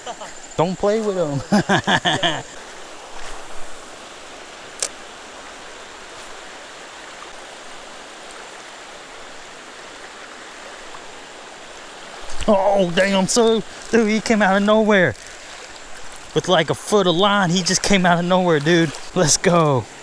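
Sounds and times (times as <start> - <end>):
river flowing over rocks: 2.4 - 20.0
sharp click: 4.8 - 5.0.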